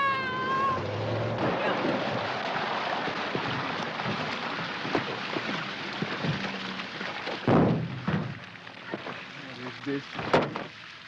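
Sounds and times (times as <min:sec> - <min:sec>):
water splashing on pavement: 0:00.0 - 0:11.0
heavy thud: 0:07.5 - 0:08.4.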